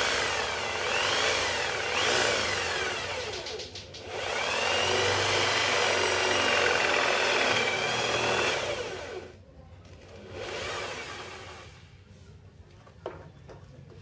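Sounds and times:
electric drill boring into wood: 0:00.0 - 0:09.4, 0:10.3 - 0:11.8.

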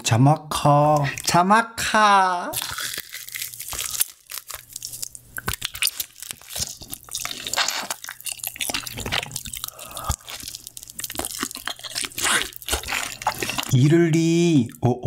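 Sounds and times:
biting and chewing meat: 0:02.6 - 0:13.8.

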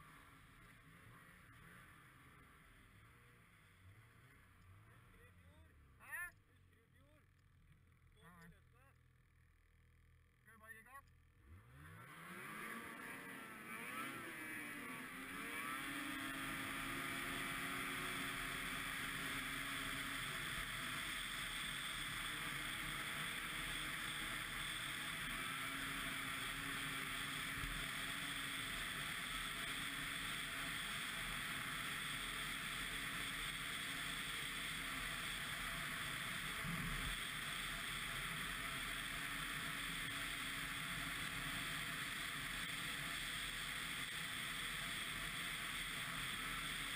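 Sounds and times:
snowmobile engine revving: 0:11.4 - 0:46.9.

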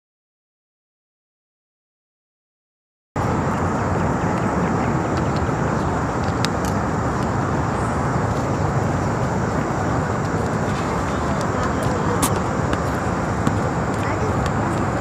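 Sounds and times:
outdoor rumble and hiss: 0:03.2 - 0:15.0.

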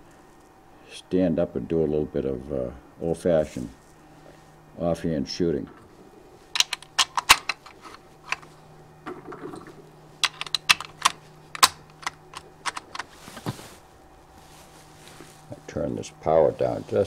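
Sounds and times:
rifle bolt clicking: 0:10.2 - 0:13.0
brief rustle: 0:12.7 - 0:15.5.

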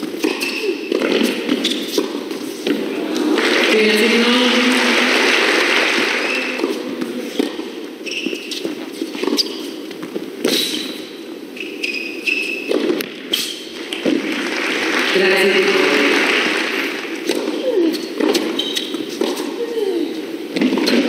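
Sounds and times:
shoe squeaks on court: 0:00.2 - 0:02.7, 0:07.3 - 0:13.8, 0:17.9 - 0:19.5
crowd applause: 0:02.8 - 0:07.0, 0:14.0 - 0:17.2.

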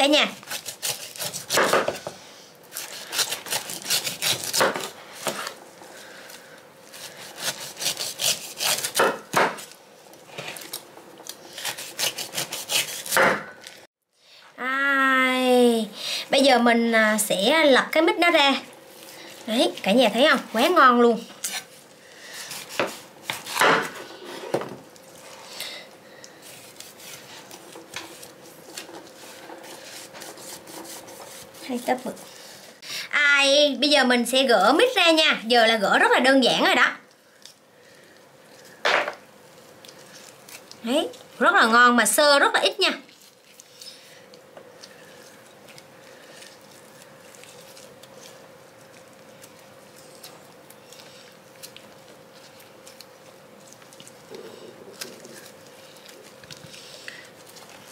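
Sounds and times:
faint steady hum: 0:00.0 - 0:57.9
knife cutting fruit on wooden board: 0:00.4 - 0:05.6, 0:07.0 - 0:09.8, 0:11.5 - 0:13.6, 0:22.5 - 0:24.8, 0:26.5 - 0:32.2
soft sticky squelches: 0:43.0 - 0:57.9.

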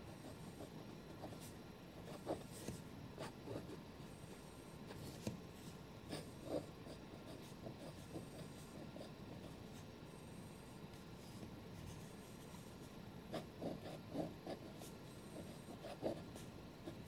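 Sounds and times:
fountain pen scratching paper: 0:00.1 - 0:05.3, 0:06.1 - 0:09.6, 0:13.3 - 0:17.0.

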